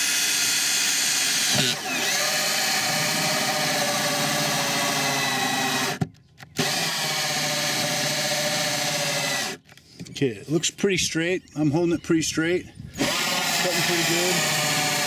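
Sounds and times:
cordless drill whining: 0.0 - 9.8, 12.9 - 15.0.

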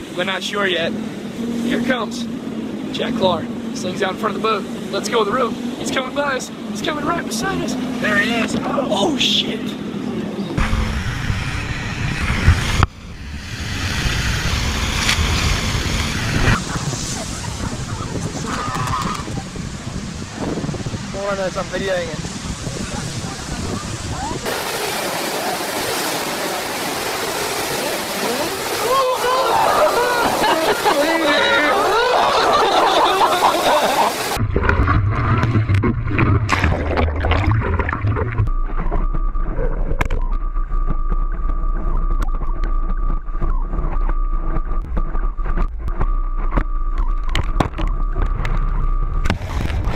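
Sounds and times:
rushing water: 0.0 - 11.4, 12.4 - 39.2
wind on microphone: 9.8 - 30.8, 34.3 - 49.9
onlookers' voices: 16.4 - 34.4.

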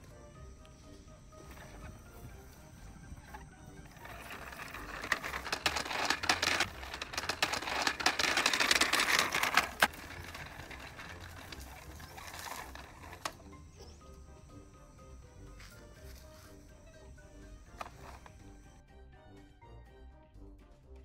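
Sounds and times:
dry crackling and rustling: 1.4 - 13.5
sharp clicks: 4.0 - 13.4.

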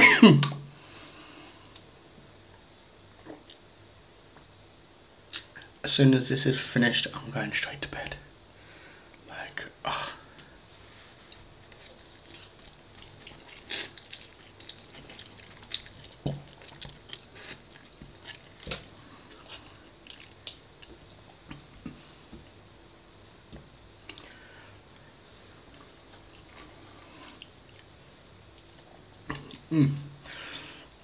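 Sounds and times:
person chewing food: 11.2 - 24.8, 25.7 - 27.9, 28.5 - 31.0.

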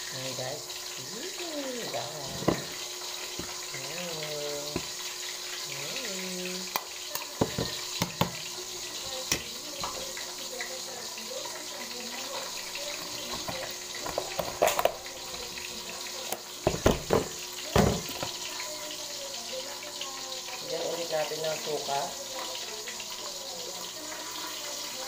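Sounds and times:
ceramic bowl knocking on counter: 2.4 - 2.7, 7.4 - 8.4, 16.6 - 18.4.

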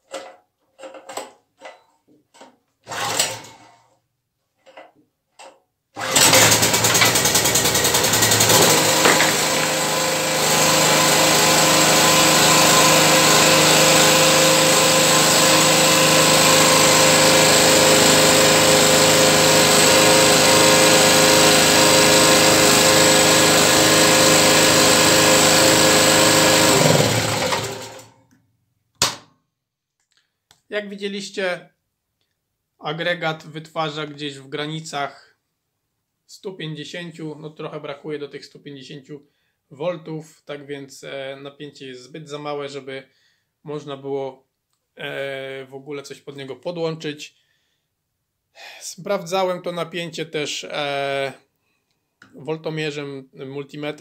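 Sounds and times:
generator engine running: 6.0 - 28.1.

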